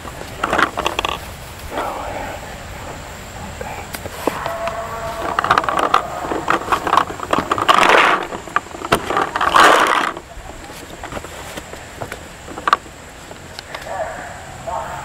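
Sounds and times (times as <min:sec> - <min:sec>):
sharp clicks and rattles: 0:00.0 - 0:01.4, 0:03.6 - 0:13.9
gear rustling and clattering: 0:00.0 - 0:02.0, 0:04.0 - 0:13.9.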